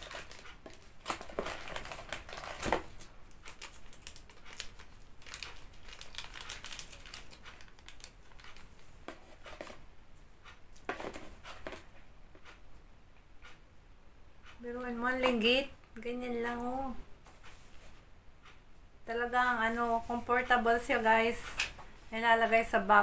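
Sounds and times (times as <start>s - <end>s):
packaging crinkling and rustling: 0.0s - 9.8s.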